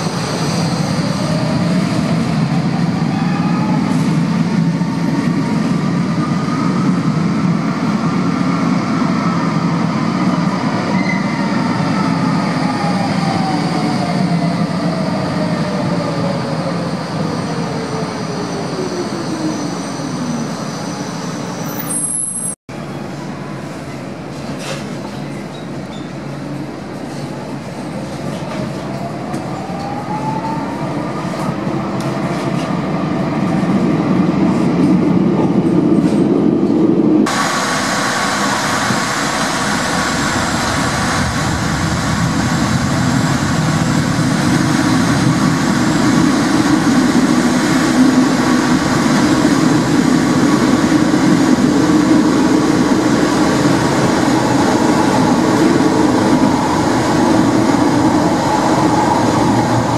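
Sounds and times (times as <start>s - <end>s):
tram rumbling along track: 0.0s - 59.9s
tram motors whining: 40.3s - 59.9s.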